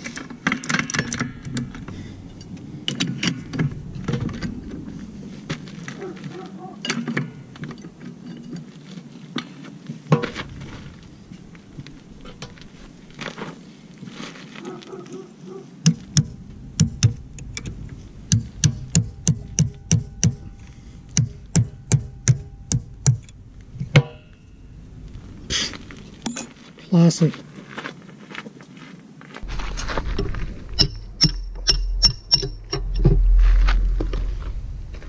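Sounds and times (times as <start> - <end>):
light metal clanks: 0.0 - 9.1, 15.9 - 26.8
hammer blows on metal: 18.3 - 24.5.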